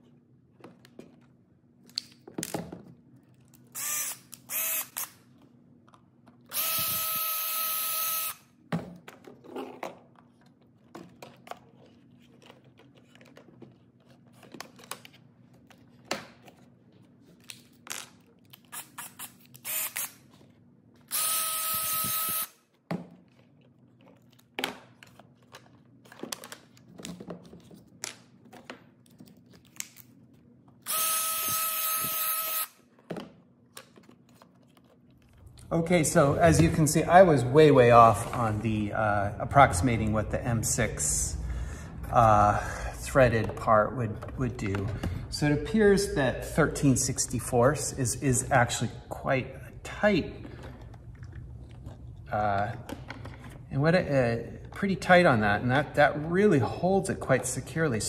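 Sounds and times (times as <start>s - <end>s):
cordless drill running: 3.8s - 5.1s, 6.5s - 8.4s, 19.6s - 20.1s, 21.1s - 22.6s, 30.8s - 32.8s
drill trigger blips: 6.5s - 8.4s, 21.1s - 22.5s.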